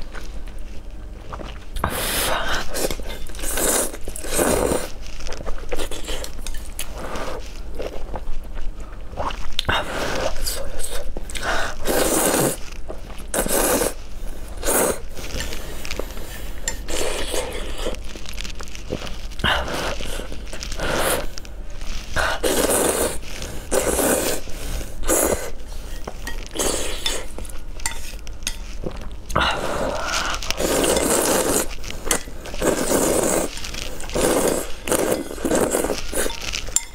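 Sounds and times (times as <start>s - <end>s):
noodle slurping: 1.8s - 5.0s, 11.4s - 12.7s, 13.3s - 18.1s, 18.9s - 21.4s, 22.0s - 28.0s, 29.5s - 36.9s.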